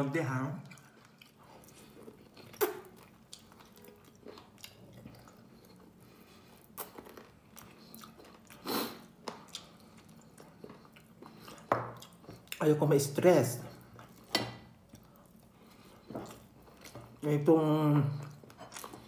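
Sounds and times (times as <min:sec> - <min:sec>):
person chewing: 0:00.6 - 0:12.8, 0:13.6 - 0:17.2, 0:18.1 - 0:19.0
mouth smacks: 0:02.5 - 0:03.0.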